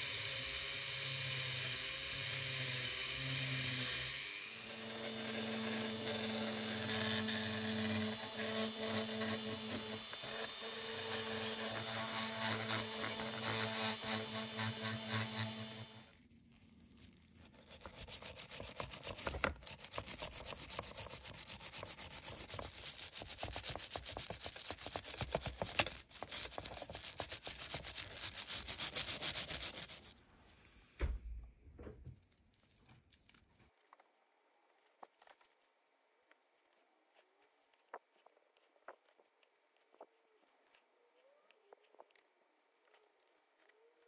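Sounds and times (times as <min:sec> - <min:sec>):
brush scrubbing metal thread: 0:16.5 - 0:30.2.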